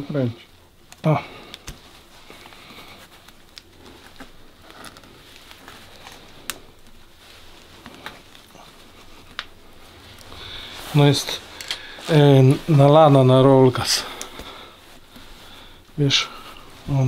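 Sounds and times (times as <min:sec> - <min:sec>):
faint steady hum: 0:00.0 - 0:17.0
hand tools clicking and tapping: 0:11.6 - 0:11.8.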